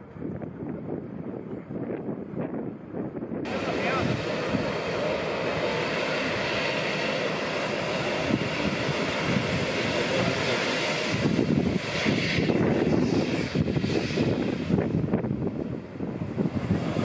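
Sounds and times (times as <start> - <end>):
steam locomotive hissing steam: 3.5 - 14.8.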